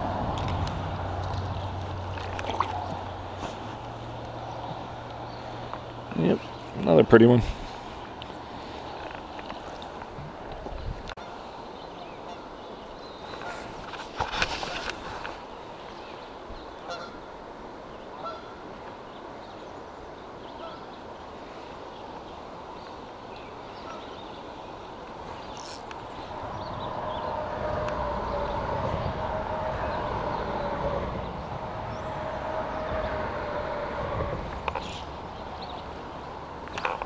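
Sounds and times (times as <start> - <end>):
shallow river flowing: 0.0 - 37.0.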